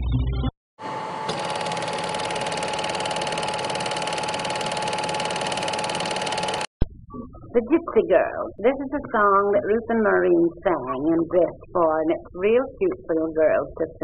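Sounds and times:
small machine clattering and whining: 0:01.3 - 0:06.7.

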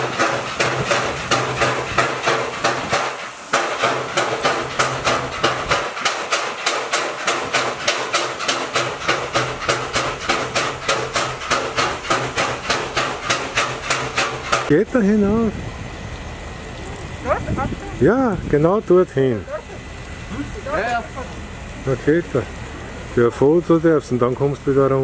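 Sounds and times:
steam locomotive knocking: 0:00.0 - 0:16.8.

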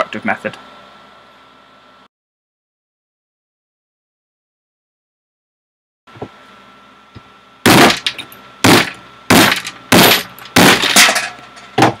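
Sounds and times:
hammer striking wooden board: 0:07.7 - 0:08.0, 0:08.7 - 0:10.9.

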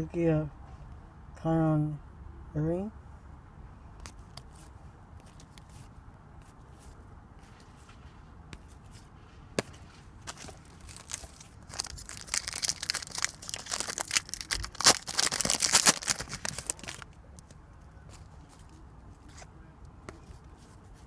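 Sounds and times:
card pack wrapper crinkling: 0:10.2 - 0:17.5.

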